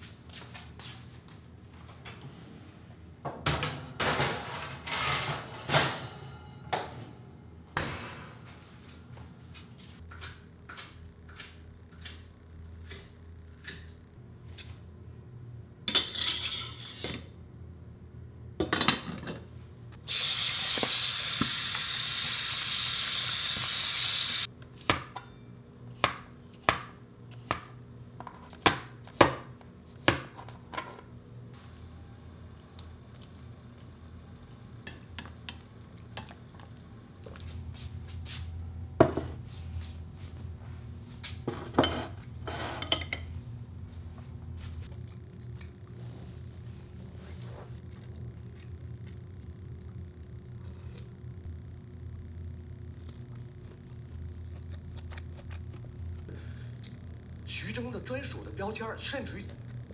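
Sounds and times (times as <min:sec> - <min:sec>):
utensils and dishes clinking: 0:25.1 - 0:25.5.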